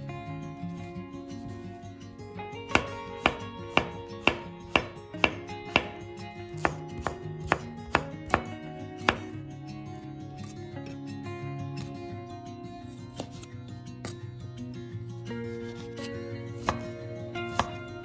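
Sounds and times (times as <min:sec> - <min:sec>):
knife slicing on wooden board: 0:06.6 - 0:09.3, 0:13.1 - 0:14.2, 0:15.5 - 0:17.8.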